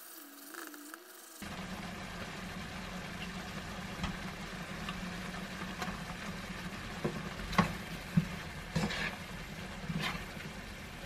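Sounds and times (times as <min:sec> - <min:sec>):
curry simmering in a pan: 0:01.4 - 0:11.0.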